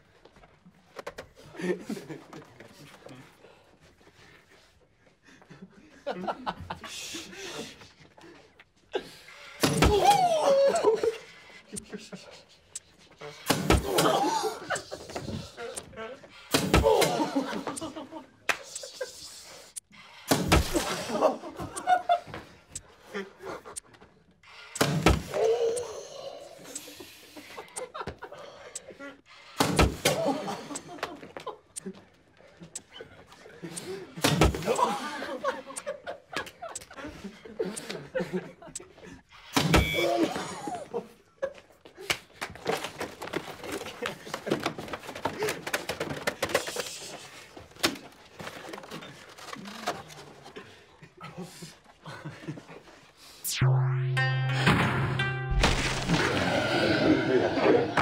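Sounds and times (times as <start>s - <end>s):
people laughing: 1.4s - 3.3s, 5.2s - 19.6s, 20.6s - 24.0s, 26.7s - 29.2s, 30.0s - 39.2s, 50.4s - 53.0s.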